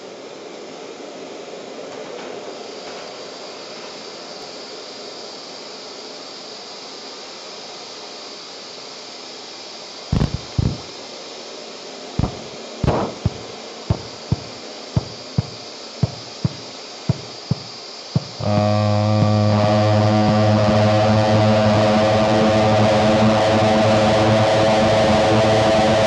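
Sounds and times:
steady static hiss: 0.0s - 26.0s
bright high hiss: 2.5s - 23.9s
loud low thumps: 10.2s - 10.9s, 12.2s - 20.6s.

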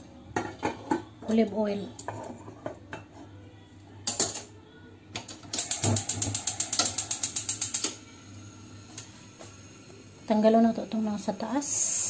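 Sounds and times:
gas hob igniter clicking: 5.2s - 8.0s.

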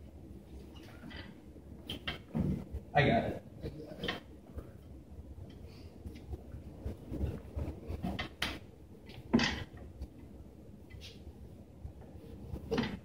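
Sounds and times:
knocks and rustling on padded table: 2.0s - 2.8s, 12.0s - 13.0s.

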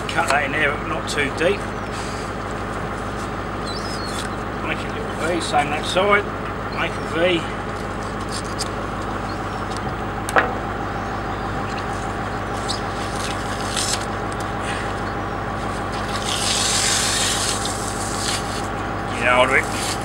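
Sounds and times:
engine idling: 0.0s - 20.0s
knife scraping skin: 16.0s - 18.7s, 19.6s - 20.0s
rasping hiss: 16.1s - 18.7s.

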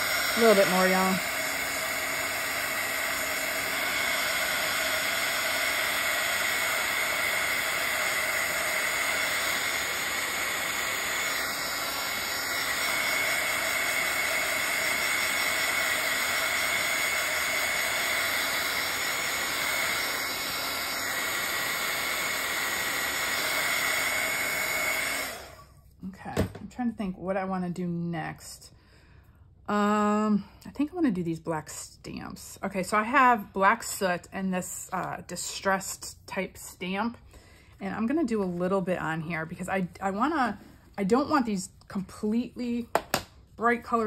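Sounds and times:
heat tool blowing with high whine: 0.0s - 25.7s.

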